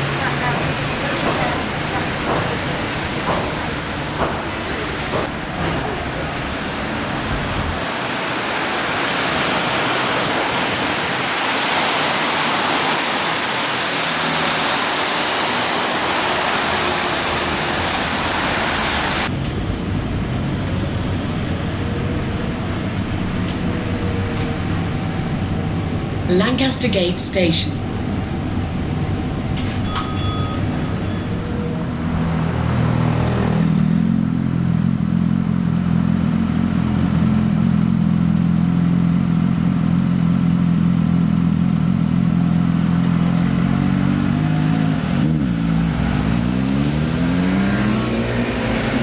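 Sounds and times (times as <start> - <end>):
bus cabin hum: 0.0 - 8.6, 16.2 - 33.7
tyres hissing on wet road: 5.9 - 19.3.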